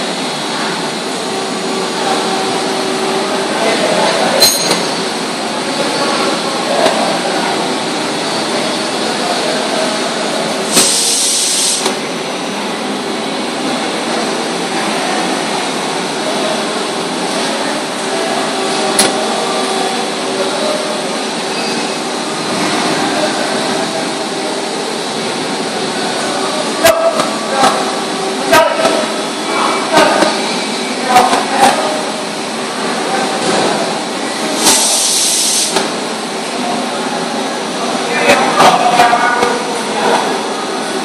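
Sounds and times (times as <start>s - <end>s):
air hiss: 10.7s - 12.0s, 34.5s - 35.9s.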